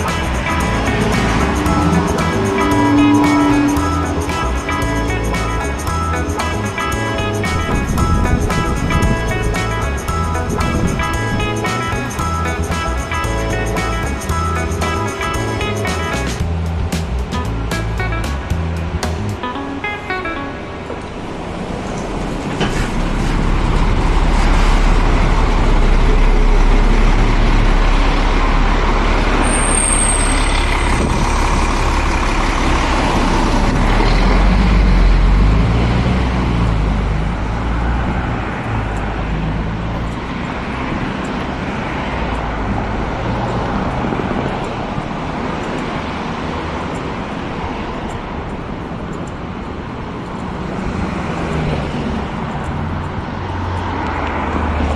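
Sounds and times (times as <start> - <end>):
city bus running: 0.0 - 54.9
passing traffic hum: 0.0 - 54.9
brief high squeal: 29.4 - 30.7.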